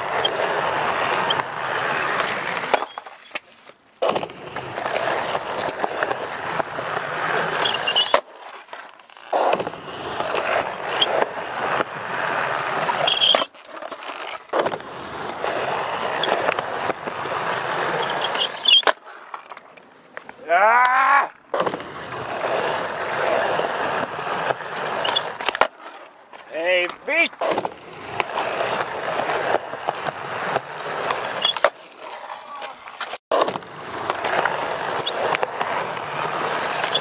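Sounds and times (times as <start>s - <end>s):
skateboard tail popping: 0.0s - 37.0s
skateboard wheels rolling on asphalt: 0.0s - 37.0s
skateboard landing clack: 4.0s - 5.1s, 14.4s - 15.4s, 21.5s - 22.0s, 26.9s - 28.9s, 33.3s - 34.5s.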